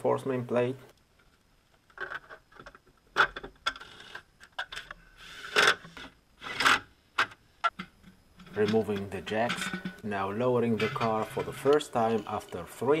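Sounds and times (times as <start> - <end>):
clinks of bolts and tools: 7.7 - 10.0.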